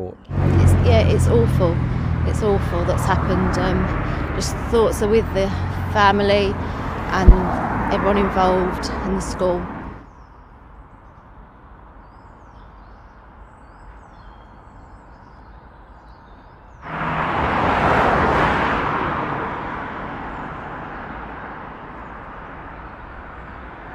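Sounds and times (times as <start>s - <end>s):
birds chirping: 0.0s - 16.9s
car passing close by: 0.3s - 10.0s, 16.8s - 23.9s.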